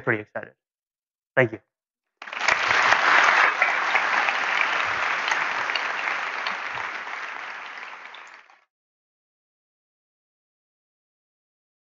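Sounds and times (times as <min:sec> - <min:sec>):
audience applauding: 0:02.2 - 0:08.6.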